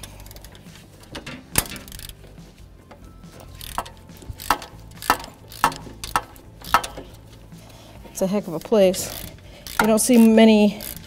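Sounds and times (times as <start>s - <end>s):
hand ratchet clicking: 0.0s - 11.0s.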